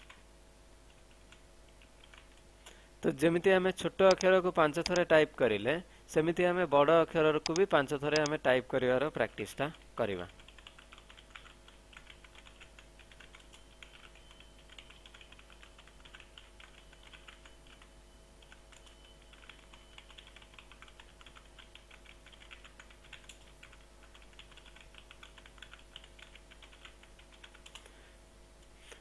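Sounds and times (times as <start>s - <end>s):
keyboard typing: 0.9s - 2.4s, 4.0s - 5.2s, 7.3s - 8.4s, 9.7s - 27.9s.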